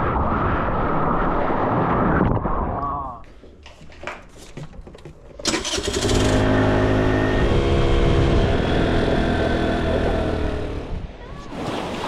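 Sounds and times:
scooter engine running: 5.4s - 10.9s.

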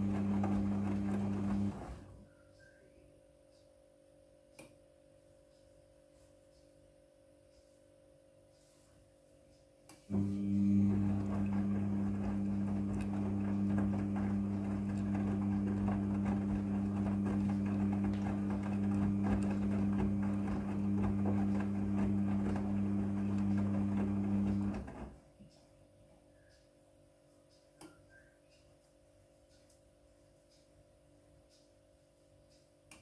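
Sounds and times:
washing machine motor hum: 0.0s - 2.2s, 10.1s - 25.2s.

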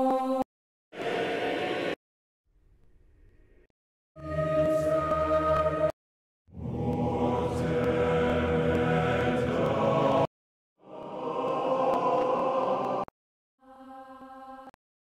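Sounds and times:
synthesized choir chord: 1.0s - 2.0s, 6.5s - 14.8s.

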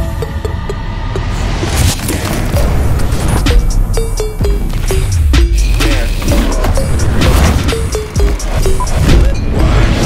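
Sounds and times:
music with heavy bass beat: 2.0s - 10.0s.

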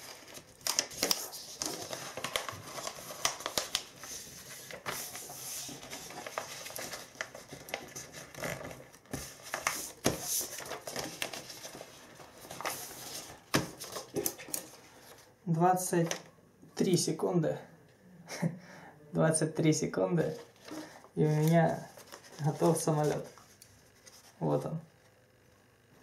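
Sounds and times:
paper rustling and crinkling: 0.0s - 15.3s, 20.2s - 24.4s.

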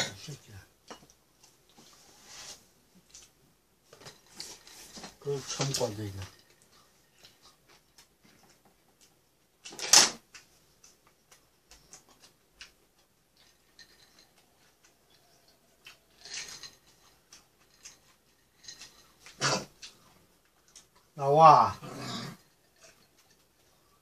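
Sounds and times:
chewing and smacking: 6.4s - 21.2s.

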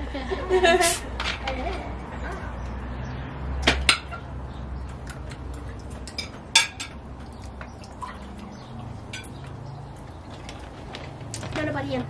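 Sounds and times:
glasses and tableware clinking: 6.1s - 7.0s, 9.0s - 9.5s.

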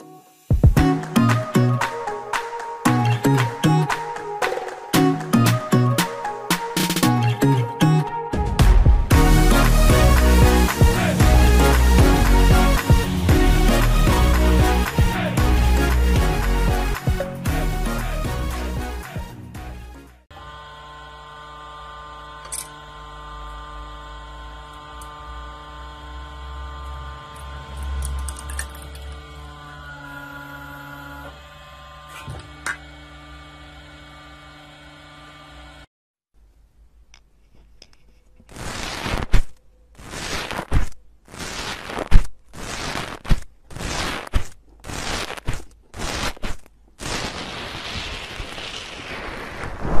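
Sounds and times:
hydraulic press motor hum: 20.3s - 35.9s
crunchy foam crackling: 38.5s - 50.0s.

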